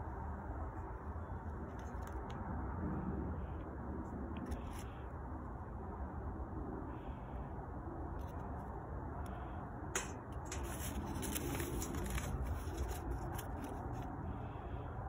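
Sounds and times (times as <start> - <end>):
burning paper crackling: 10.0 - 14.3.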